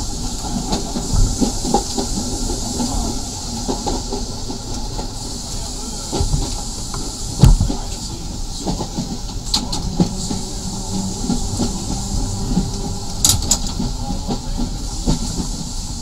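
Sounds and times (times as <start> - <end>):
tram jolt: 0.0 - 16.0
tram running on track: 0.0 - 16.0
wheels and car body rattling: 8.6 - 15.8.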